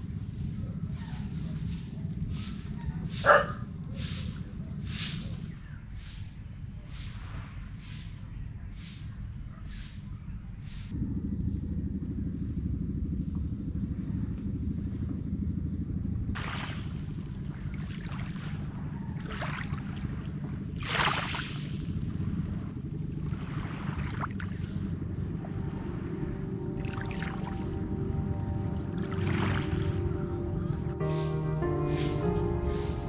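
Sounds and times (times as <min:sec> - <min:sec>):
wind rumble on microphone: 0:00.0 - 0:31.0
waves washing on pebbles: 0:16.4 - 0:26.0
faint high rhythmic pulses: 0:21.9 - 0:33.0.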